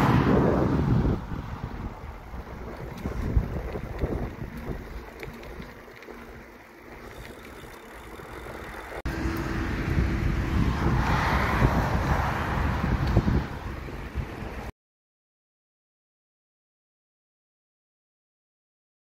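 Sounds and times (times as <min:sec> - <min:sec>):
wind buffeting microphone: 0:00.0 - 0:14.7.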